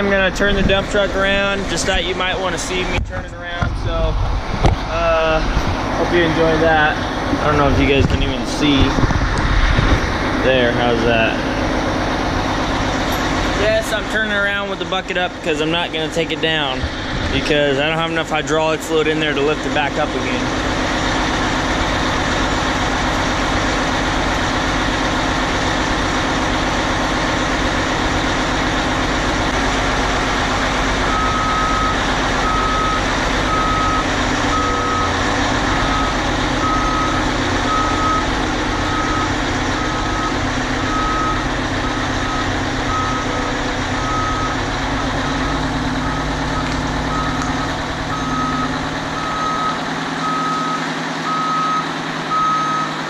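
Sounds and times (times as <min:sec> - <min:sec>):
diesel truck engine running: 0:00.0 - 0:53.0
reverse backup alarm beeping: 0:31.1 - 0:44.6, 0:45.3 - 0:53.0.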